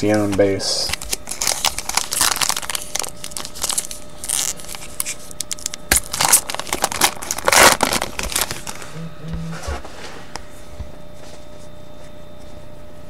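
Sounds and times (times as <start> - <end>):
card pack wrapper tearing: 0.8 - 8.9
wrapper crinkling: 0.9 - 8.9.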